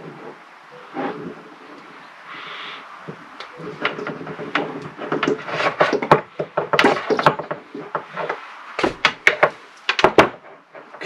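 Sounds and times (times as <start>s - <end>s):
tools knocking on wood: 3.1s - 11.0s.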